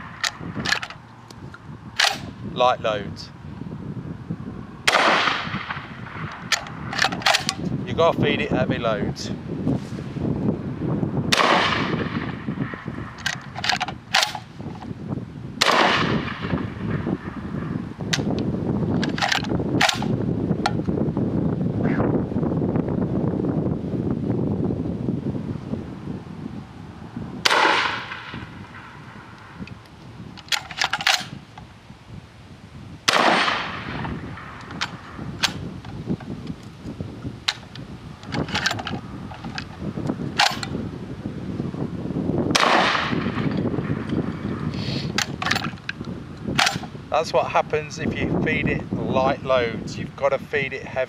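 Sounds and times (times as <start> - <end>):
metallic clicks of gun action: 0.2 - 1.0, 2.0 - 2.3, 6.3 - 7.6, 13.2 - 14.5, 18.1 - 18.4, 19.0 - 20.8, 30.4 - 31.4, 34.6 - 35.6, 37.5 - 39.8, 40.4 - 40.8, 45.1 - 46.9
shotgun shots: 2.0 - 2.3, 4.9 - 7.6, 11.3 - 12.8, 15.6 - 17.1, 27.4 - 29.0, 33.1 - 35.6, 42.5 - 43.5.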